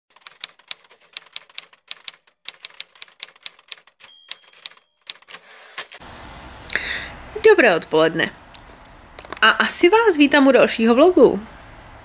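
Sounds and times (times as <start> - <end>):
typewriter keys clacking: 0.1 - 6.0
high ringing tone: 4.0 - 5.0.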